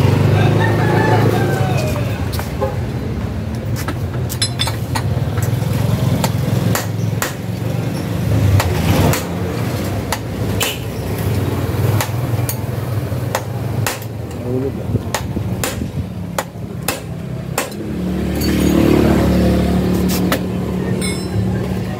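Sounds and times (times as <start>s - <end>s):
hammer striking steel frame: 13.3s - 14.2s, 15.1s - 18.8s, 21.0s - 21.5s.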